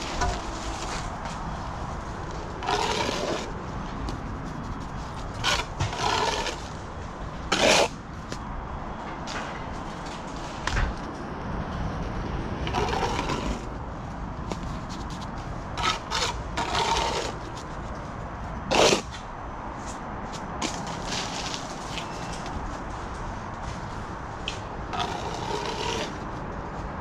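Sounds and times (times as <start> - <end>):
trowel scraping mortar on brick: 2.6 - 3.5, 5.1 - 6.8, 7.5 - 8.0, 15.8 - 17.7, 18.7 - 19.2, 24.9 - 26.2.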